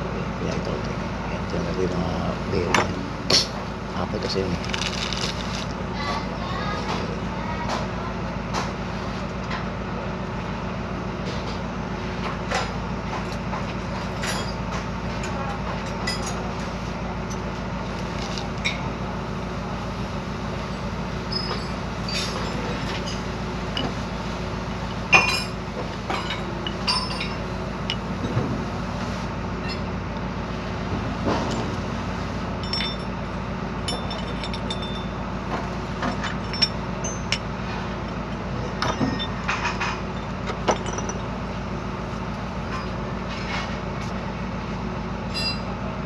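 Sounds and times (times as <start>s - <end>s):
steady background noise: 0.0s - 46.0s
metal parts clinking and knocking: 4.6s - 5.7s, 25.1s - 28.4s, 32.6s - 41.3s.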